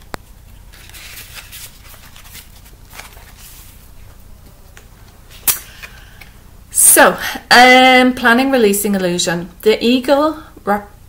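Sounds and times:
soft rustling of cards or pages: 0:00.0 - 0:06.3.

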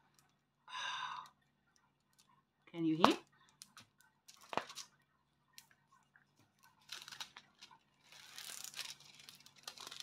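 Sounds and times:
plastic packaging crinkling: 0:03.5 - 0:05.0, 0:06.6 - 0:10.0.

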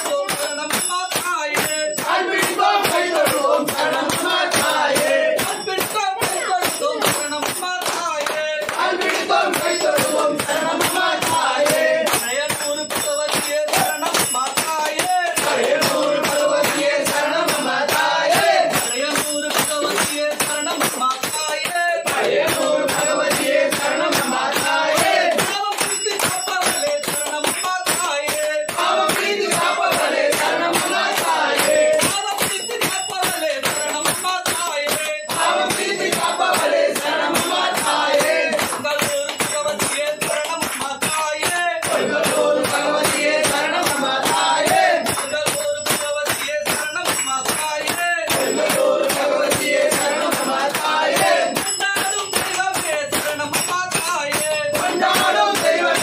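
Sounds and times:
devotional singing: 0:00.0 - 0:56.0
fast percussion beat: 0:00.0 - 0:56.0.

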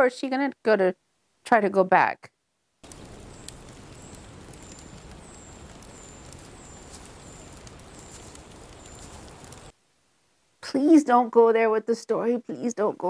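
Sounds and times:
soft rustling hiss: 0:02.7 - 0:13.0.

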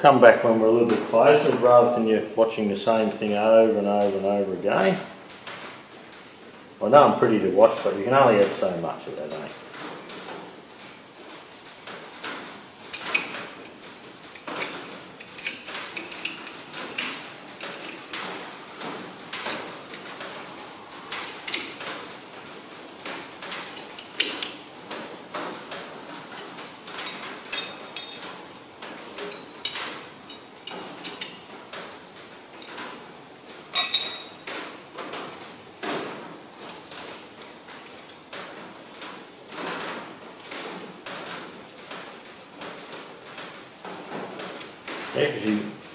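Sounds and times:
metal clinks and taps of tools: 0:12.9 - 0:13.4, 0:14.3 - 0:18.4, 0:21.1 - 0:21.9, 0:23.5 - 0:24.6, 0:27.0 - 0:28.4, 0:29.2 - 0:31.5, 0:33.7 - 0:34.6.

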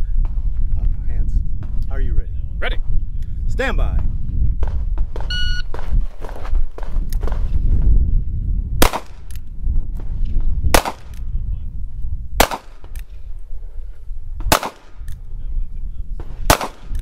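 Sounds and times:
shot timer beep: 0:05.3 - 0:05.7
faint gunshot cracks: 0:12.4 - 0:13.0, 0:14.5 - 0:15.0, 0:16.5 - 0:17.0.

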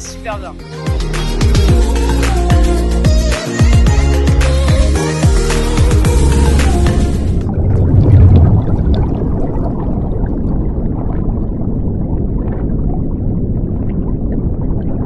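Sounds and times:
low underwater rumble: 0:04.6 - 0:15.0
rushing bubbles: 0:05.9 - 0:15.0
faint gurgling: 0:07.4 - 0:15.0.

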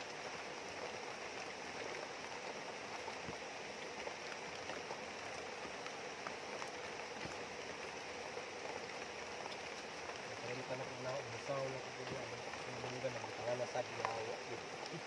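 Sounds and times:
river flowing: 0:00.0 - 0:15.0
steady rain: 0:00.0 - 0:15.0.

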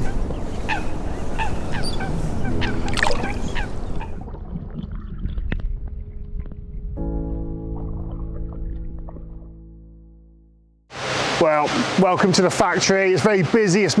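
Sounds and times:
steady outdoor hiss: 0:00.0 - 0:04.0, 0:10.9 - 0:14.0
geese honking: 0:00.0 - 0:04.2.

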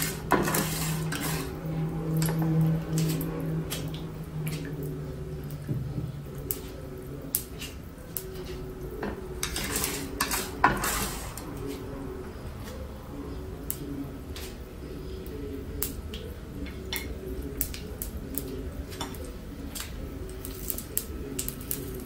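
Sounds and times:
spatula scraping frying pan: 0:00.0 - 0:03.9, 0:07.5 - 0:11.9
food frying in oil: 0:00.0 - 0:22.0
steady low hum: 0:00.0 - 0:22.0.

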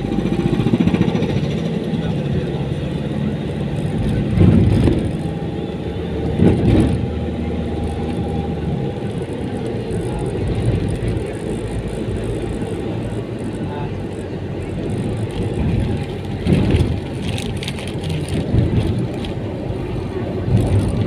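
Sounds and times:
vehicle engine humming: 0:00.0 - 0:21.0.

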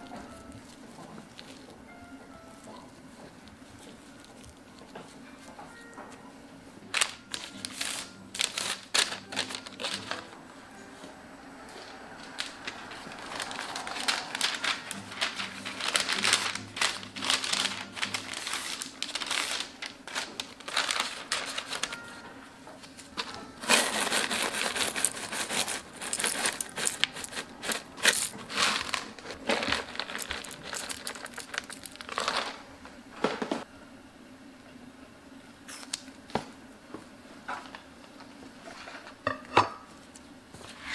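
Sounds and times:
paper crinkling and rustling: 0:00.0 - 0:06.0, 0:06.9 - 0:33.5.

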